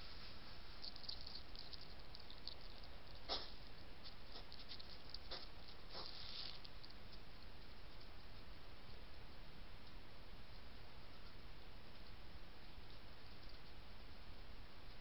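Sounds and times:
steady low hiss: 0:00.0 - 0:15.0
hedgehogs clicking and rustling: 0:00.8 - 0:08.5.

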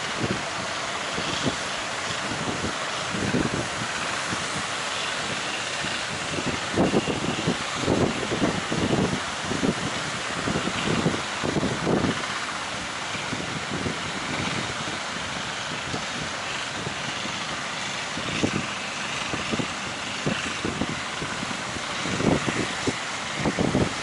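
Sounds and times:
sea surf breaking: 0:00.0 - 0:24.0
wind buffeting microphone: 0:00.0 - 0:24.0.

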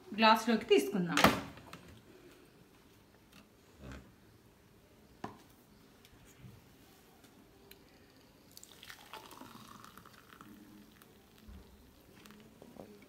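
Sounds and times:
juice pouring into a glass mug: 0:07.7 - 0:13.0.

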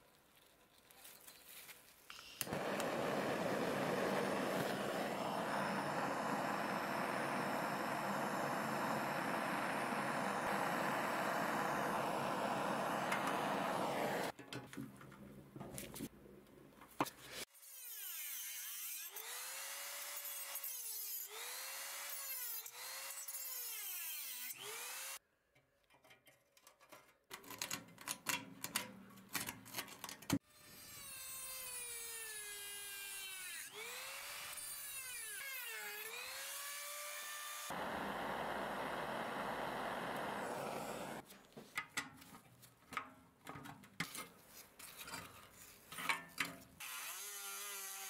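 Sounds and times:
power drill motor whining: 0:02.1 - 0:14.3, 0:37.6 - 0:41.2
compressed air hissing: 0:02.4 - 0:14.3, 0:37.7 - 0:41.2.

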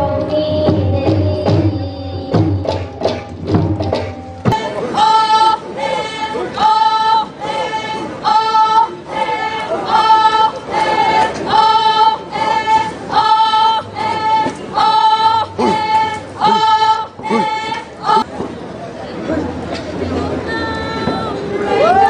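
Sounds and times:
chorus singing folk song: 0:03.9 - 0:18.3.

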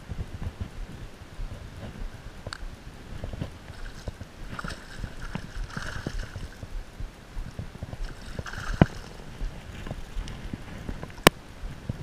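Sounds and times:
wind on microphone: 0:00.0 - 0:12.0
fish thrashing in water: 0:03.7 - 0:06.7, 0:08.0 - 0:10.0.

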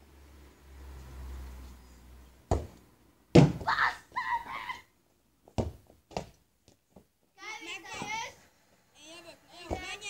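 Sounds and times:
football being kicked: 0:02.5 - 0:02.7, 0:03.3 - 0:03.7, 0:05.6 - 0:06.3
person shouting: 0:03.6 - 0:04.9.

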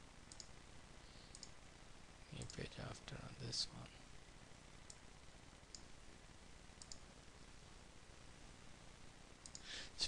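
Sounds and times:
computer mouse clicks: 0:00.3 - 0:00.6, 0:01.3 - 0:01.6, 0:04.8 - 0:05.0, 0:05.7 - 0:05.9, 0:06.8 - 0:07.1, 0:09.4 - 0:09.7.

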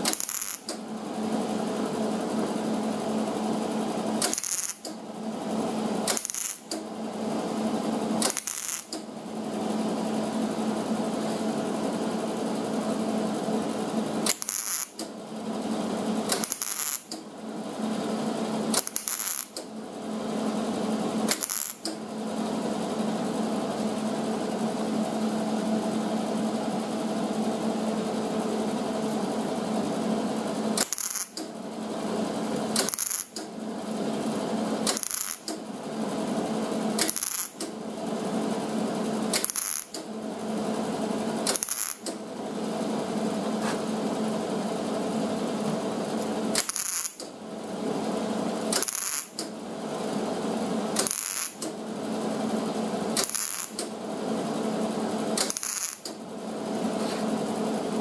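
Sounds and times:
welder arc crackling and buzzing: 0:00.0 - 0:05.0, 0:05.6 - 0:09.1, 0:12.5 - 0:19.8, 0:20.6 - 0:22.2, 0:29.0 - 0:42.5, 0:43.5 - 0:56.3.

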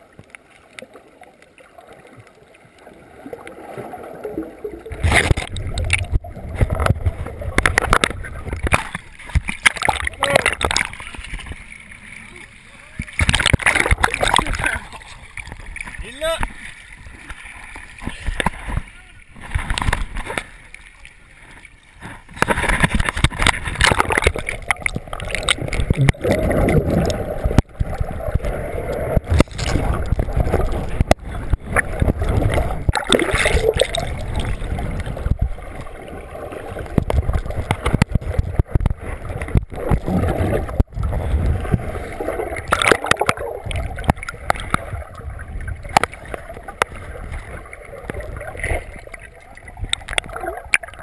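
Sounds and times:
muffled underwater gurgling: 0:22.9 - 0:51.0.

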